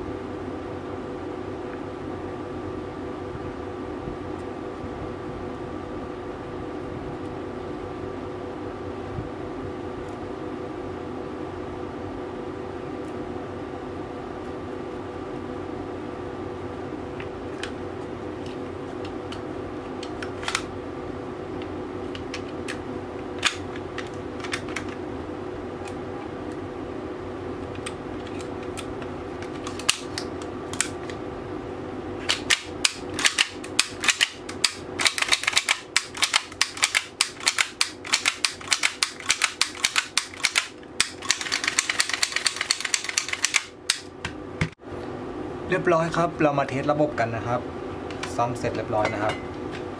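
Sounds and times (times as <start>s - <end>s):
small parts clicking: 32.3s - 44.1s.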